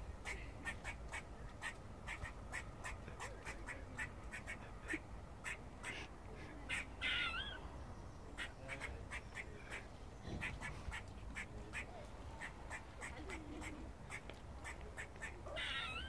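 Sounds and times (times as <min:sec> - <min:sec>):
squirrel barking: 0:06.7 - 0:07.6, 0:08.4 - 0:16.0
squirrel wavering call: 0:06.7 - 0:07.6, 0:14.6 - 0:16.0.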